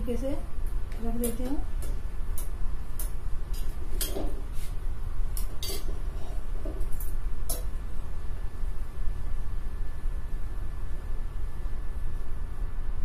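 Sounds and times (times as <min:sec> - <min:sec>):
metal tongs clinking on pan: 0:05.4 - 0:05.9.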